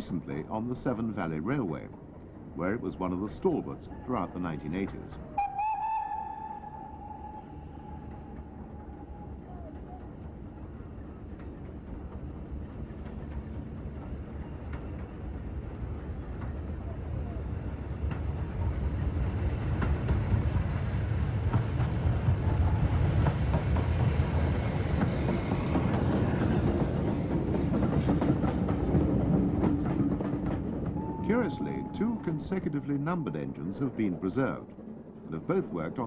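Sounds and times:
steam locomotive passing: 0.0s - 36.0s
coaches clicking over rail joints: 8.1s - 36.0s.

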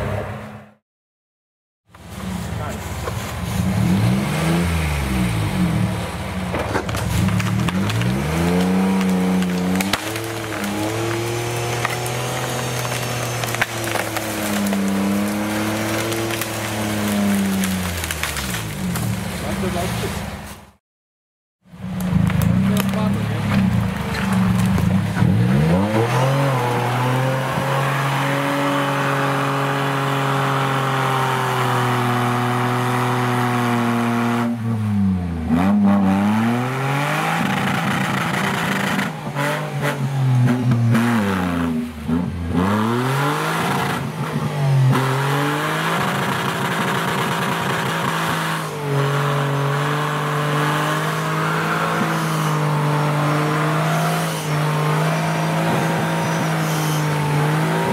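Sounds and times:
off-road vehicle engine revving: 2.3s - 20.4s, 21.8s - 57.9s.

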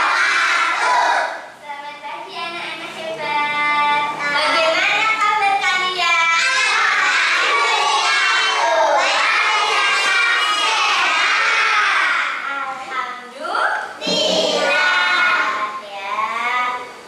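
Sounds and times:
children singing: 0.0s - 1.4s, 6.4s - 12.4s, 14.0s - 15.8s.

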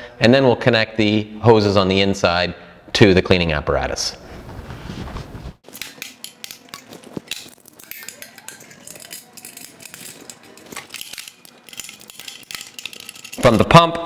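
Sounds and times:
metal fittings clicking: 5.7s - 13.6s.

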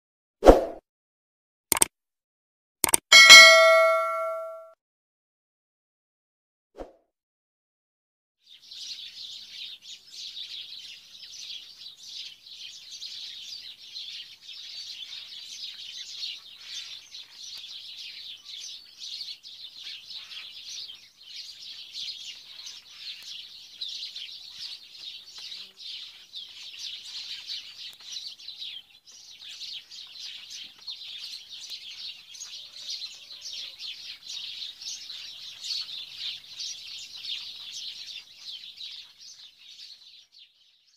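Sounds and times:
small birds chirping: 8.5s - 40.9s.

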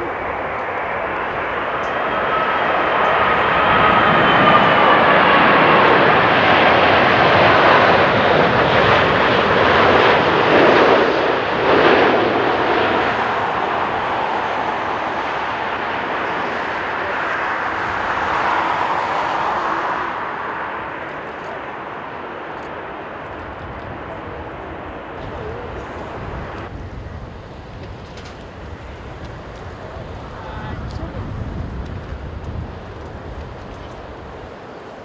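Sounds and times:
falling engine whine: 0.0s - 35.0s
jet engines passing overhead: 0.0s - 35.0s.

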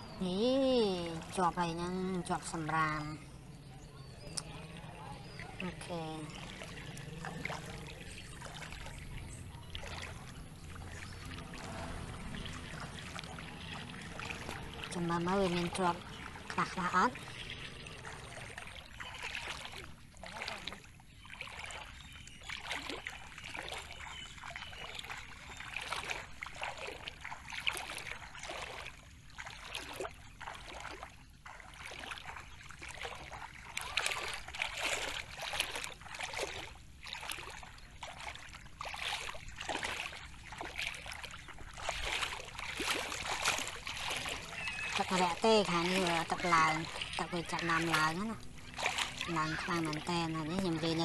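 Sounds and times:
water splashing around wading legs: 0.0s - 51.0s.

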